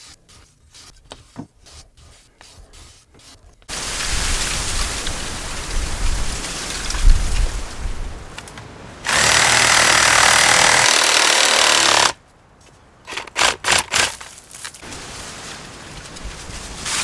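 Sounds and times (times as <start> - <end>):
reciprocating saw cutting bamboo: 9.1 - 12.2, 13.1 - 14.2.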